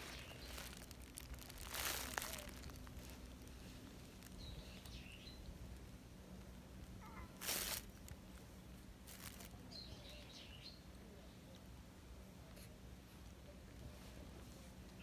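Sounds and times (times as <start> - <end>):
brushing rustle: 0.0 - 5.0, 7.2 - 8.2, 9.0 - 9.6.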